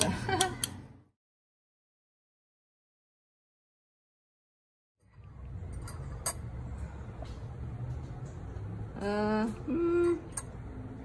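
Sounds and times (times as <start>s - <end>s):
low room hum: 5.0s - 11.0s
person making wordless sounds: 9.0s - 10.3s.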